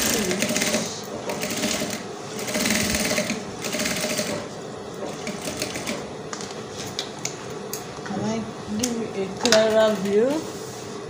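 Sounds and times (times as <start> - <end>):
sewing machine stitching: 0.0 - 4.5, 5.1 - 6.1.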